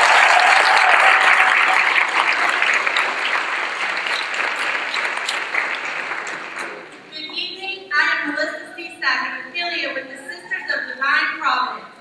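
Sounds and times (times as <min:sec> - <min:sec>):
audience applauding: 0:00.0 - 0:07.1.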